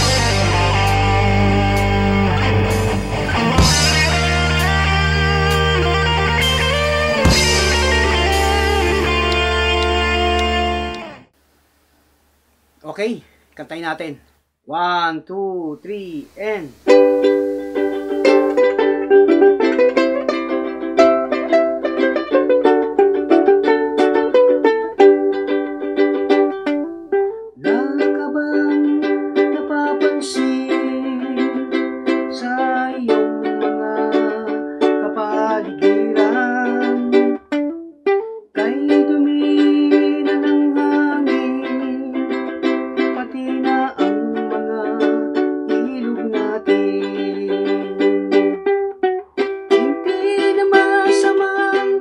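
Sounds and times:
person singing: 0:00.0 - 0:11.2, 0:15.7 - 0:37.7, 0:38.4 - 0:52.0
ukulele strumming: 0:00.0 - 0:11.3, 0:15.9 - 0:52.0.

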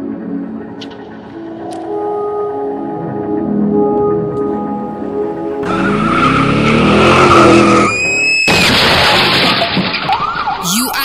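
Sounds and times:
siren wailing: 0:04.5 - 0:08.6, 0:09.6 - 0:11.0
speeding car engine: 0:05.6 - 0:09.8.

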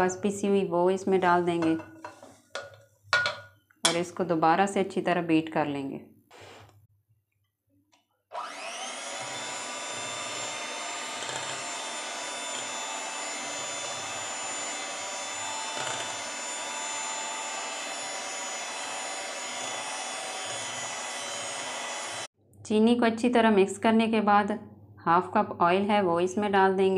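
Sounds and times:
electric hand mixer whirring: 0:08.3 - 0:22.3.

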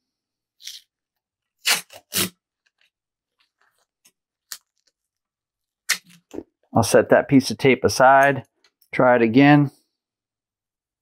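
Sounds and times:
masking tape ripping: 0:01.6 - 0:02.4.

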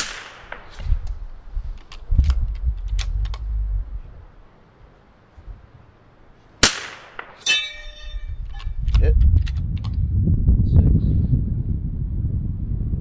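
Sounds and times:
rifle shot crack: 0:00.0 - 0:00.9, 0:06.6 - 0:07.5
low rumble: 0:01.0 - 0:04.5, 0:09.2 - 0:13.0
steel gong ringing: 0:07.5 - 0:08.4.

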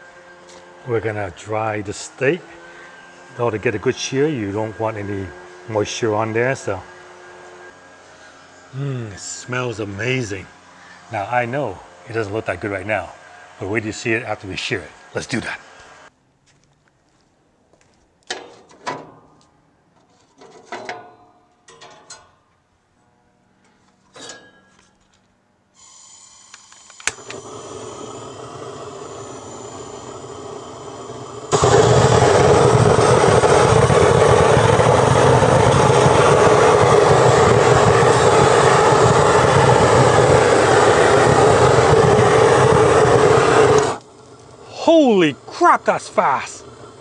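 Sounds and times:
gas hissing: 0:25.8 - 0:47.0
torch igniter click: 0:26.5 - 0:44.6
torch flame roaring: 0:27.0 - 0:47.0.

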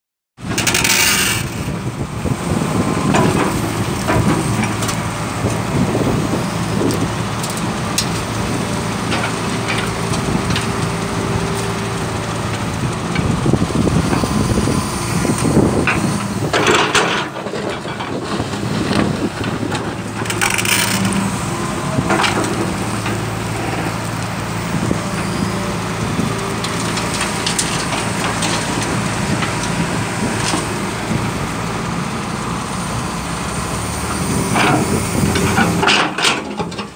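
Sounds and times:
excavator diesel engine: 0:00.4 - 0:36.9
bucket scraping stones: 0:20.0 - 0:21.5.

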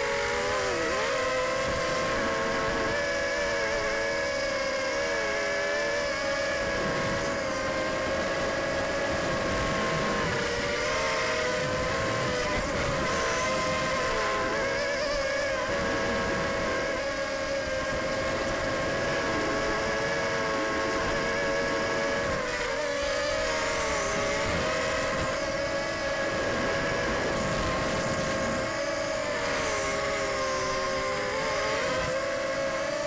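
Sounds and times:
drone motors buzzing whine: 0:00.0 - 0:33.0
wind on microphone: 0:06.6 - 0:19.8, 0:23.8 - 0:32.2.

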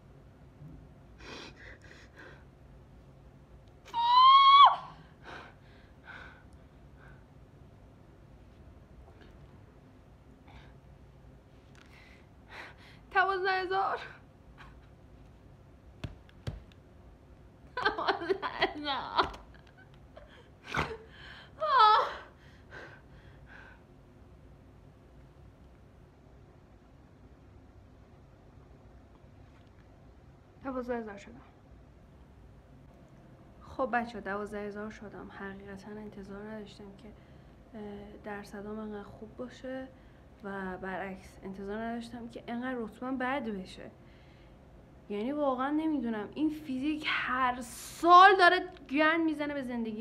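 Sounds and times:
woman crying and sobbing: 0:17.7 - 0:23.8
woman whimpering cry: 0:21.6 - 0:22.9.

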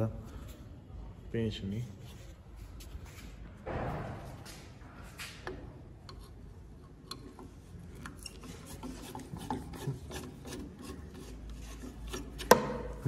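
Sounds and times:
screwdriver scraping metal: 0:08.0 - 0:12.6.

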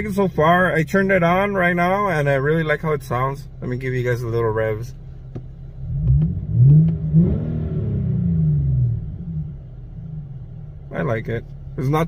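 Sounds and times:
car engine revving: 0:05.3 - 0:12.0.

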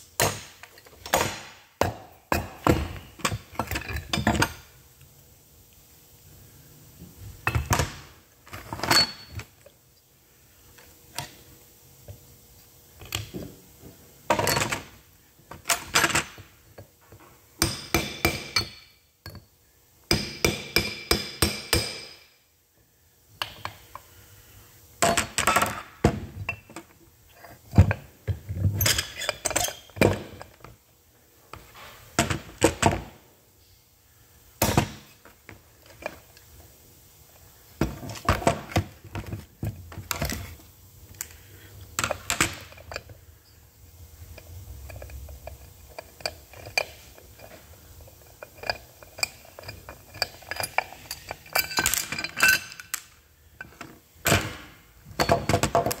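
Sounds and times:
metal parts clunking on workbench: 0:14.3 - 0:16.4, 0:42.0 - 0:43.2, 0:48.4 - 0:56.0.

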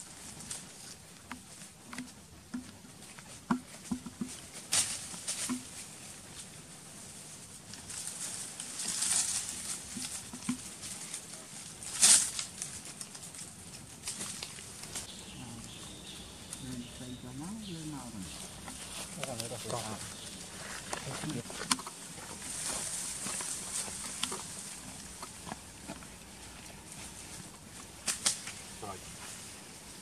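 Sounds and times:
monkeys rustling leaves: 0:07.8 - 0:24.7.

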